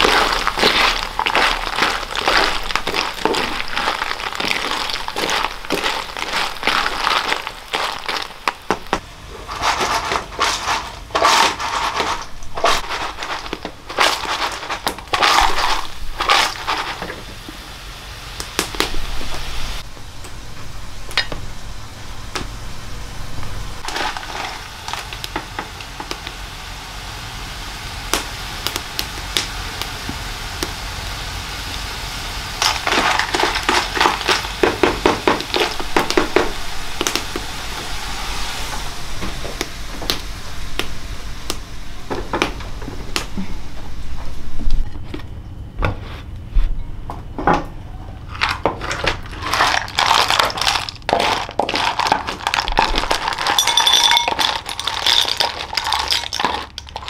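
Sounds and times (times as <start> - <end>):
hard objects clicking and clattering: 0.0 - 17.2, 32.6 - 37.3, 48.3 - 57.0.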